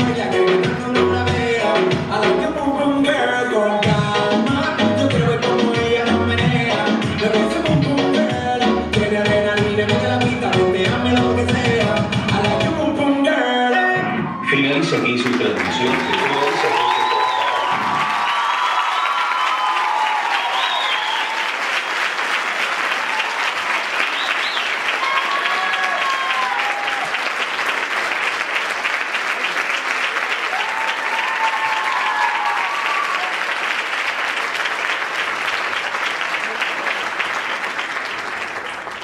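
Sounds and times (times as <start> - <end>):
audience applauding: 14.5 - 39.0.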